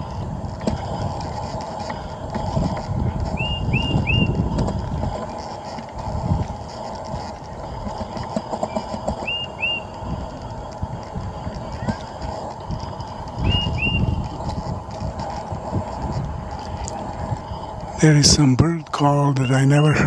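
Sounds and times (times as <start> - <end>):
low rumble: 0.0 - 20.0
bird chirping: 8.7 - 10.0, 13.4 - 14.2, 19.2 - 20.0.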